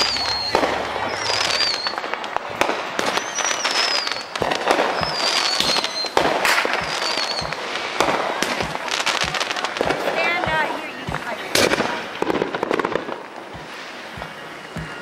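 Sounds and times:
fireworks popping and crackling: 0.0 - 15.0
fireworks whistling: 0.0 - 15.0.

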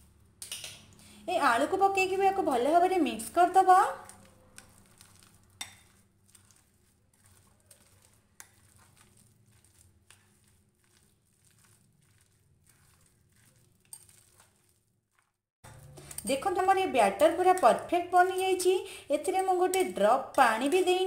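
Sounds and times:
spoon scraping a glass bowl: 4.0 - 18.5, 19.2 - 21.0.

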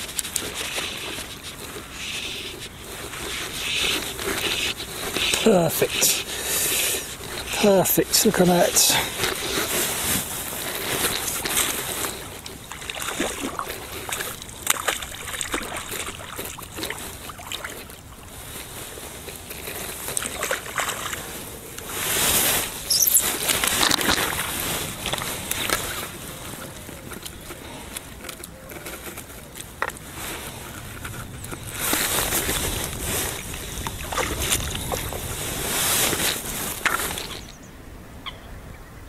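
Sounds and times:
fish splashing in water: 9.3 - 18.3, 19.4 - 27.6.

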